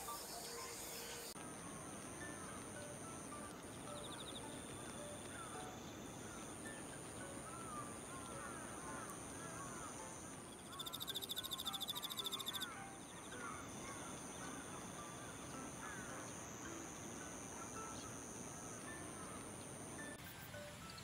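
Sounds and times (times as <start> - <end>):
insect rapid pulsing buzz: 0.0 - 21.0
insects high-pitched trills: 0.0 - 21.0.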